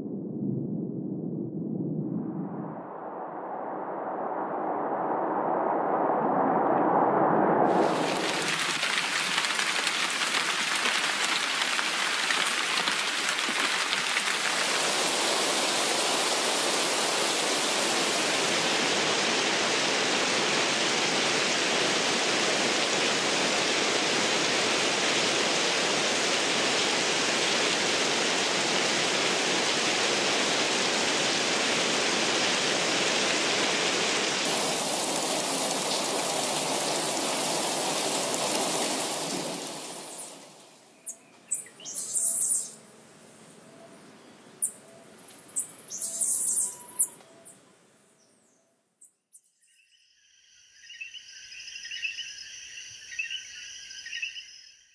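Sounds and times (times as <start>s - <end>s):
heavy rain on foliage: 7.7s - 40.9s.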